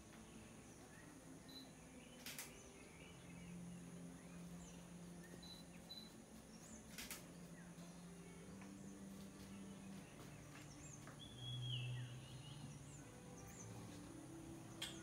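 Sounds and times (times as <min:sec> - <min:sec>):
low steady hum: 0:00.0 - 0:15.0
faint high bird chirps: 0:00.2 - 0:14.1
sharp click: 0:02.2 - 0:02.6, 0:06.9 - 0:07.3.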